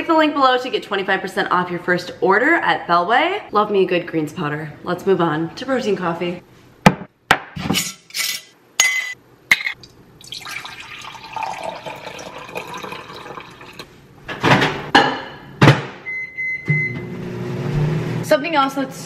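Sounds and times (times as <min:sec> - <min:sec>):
milk pouring into mug: 0:10.2 - 0:13.9.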